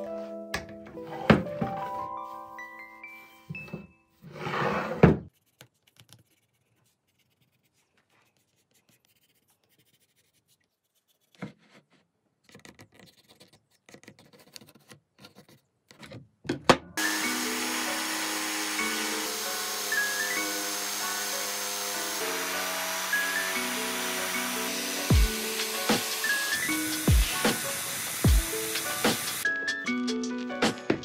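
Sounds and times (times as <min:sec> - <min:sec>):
pencil scratching: 0:05.3 - 0:15.7, 0:20.7 - 0:27.6
jigsaw cutting wood: 0:17.0 - 0:29.5.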